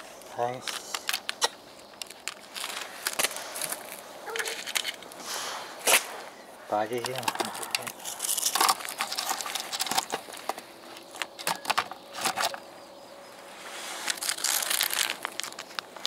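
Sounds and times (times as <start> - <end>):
foil pouch crinkling: 0.2 - 5.1, 7.0 - 11.6, 13.9 - 16.0.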